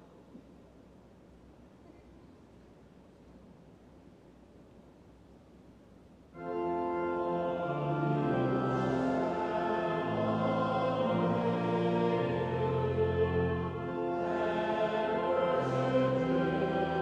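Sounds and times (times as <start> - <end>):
church organ playing chords: 6.4 - 17.0.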